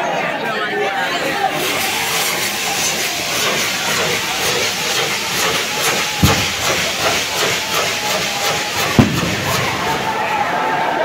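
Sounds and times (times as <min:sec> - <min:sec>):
fireworks hissing and crackling: 0:00.9 - 0:10.8
firework bang: 0:06.2 - 0:10.4.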